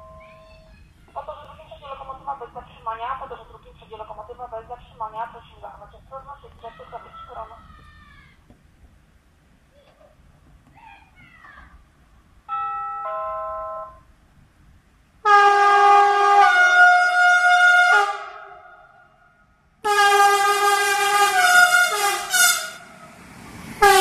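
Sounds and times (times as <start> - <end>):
electric locomotive horn blasts: 12.5 - 14.1, 15.2 - 19.0, 19.8 - 23.1, 23.8 - 24.0.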